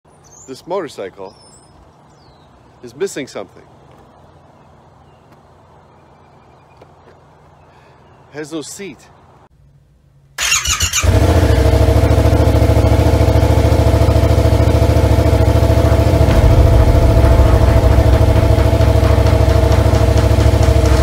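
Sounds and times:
motorcycle engine starting and idling: 0:10.4 - 0:21.0.

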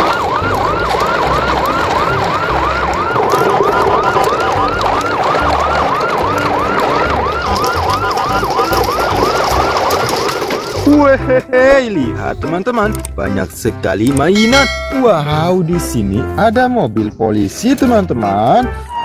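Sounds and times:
electronic siren yelping: 0:00.0 - 0:10.7.

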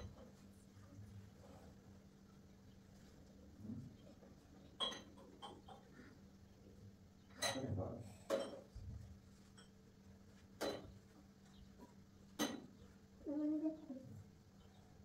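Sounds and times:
dishes and utensils clinking: 0:04.7 - 0:05.9, 0:07.4 - 0:08.8, 0:12.3 - 0:12.7.

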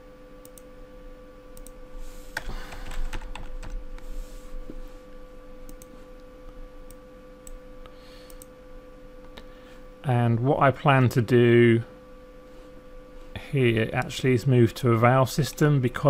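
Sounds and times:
faint hum: 0:00.0 - 0:16.0
keyboard typing clicks: 0:02.4 - 0:03.8, 0:05.7 - 0:05.9.

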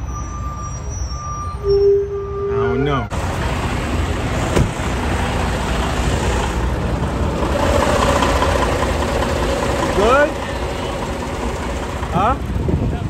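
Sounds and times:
road noise hiss: 0:00.0 - 0:13.0
truck engine idling: 0:03.1 - 0:13.0.

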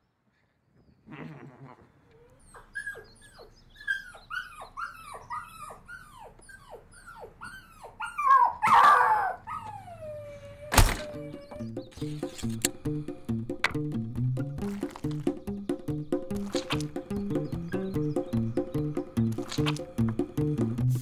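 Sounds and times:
small dog whimpering and yipping: 0:02.1 - 0:11.9.

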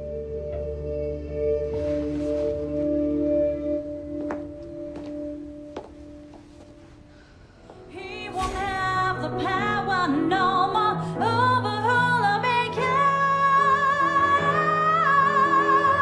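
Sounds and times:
woman singing with vibrato: 0:07.9 - 0:16.0.

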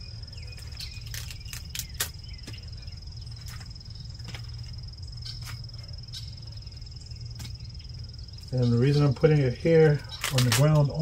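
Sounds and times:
high-pitched insect song: 0:00.0 - 0:11.0
low steady hum: 0:00.0 - 0:11.0
light clicks and rustles: 0:10.1 - 0:11.0.

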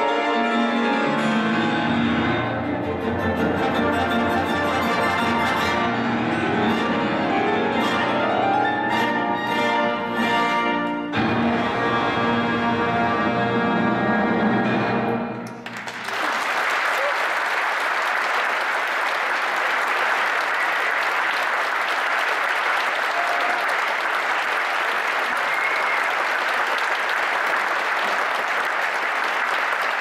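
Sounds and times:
orchestra and piano final chord: 0:00.0 - 0:15.4
audience applause: 0:15.6 - 0:30.0.

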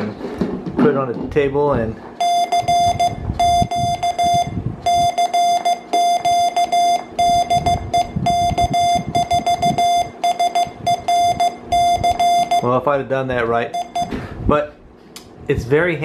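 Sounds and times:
morse code beeps: 0:02.2 - 0:12.7, 0:13.7 - 0:14.2.

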